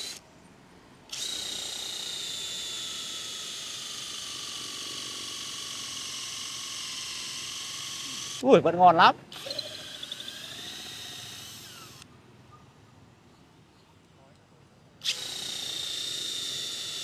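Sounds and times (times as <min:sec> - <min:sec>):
cordless drill boring into wood: 0:00.0 - 0:00.2, 0:01.1 - 0:08.4, 0:09.3 - 0:12.1, 0:15.0 - 0:17.0.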